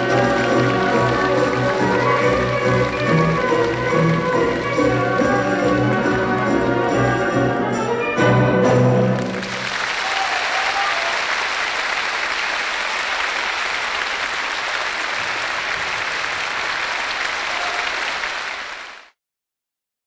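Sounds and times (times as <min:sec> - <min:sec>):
large audience applauding: 0:00.0 - 0:06.8, 0:09.1 - 0:19.2
orchestral music: 0:00.0 - 0:09.9.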